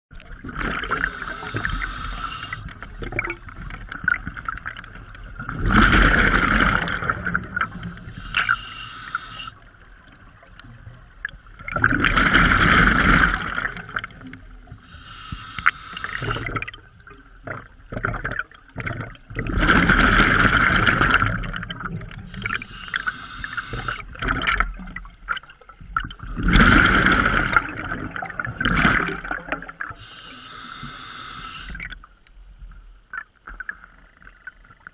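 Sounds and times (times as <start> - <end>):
exhaled bubbles bursting: 0.2 - 4.8, 5.4 - 8.5
regulator hissing inhale: 0.9 - 2.8, 7.7 - 9.6, 14.8 - 16.5, 22.3 - 24.1, 30.0 - 31.8.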